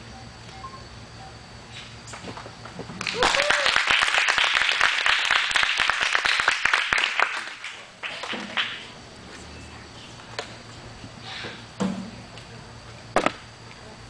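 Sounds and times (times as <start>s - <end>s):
crowd clapping and applause: 3.0s - 8.9s.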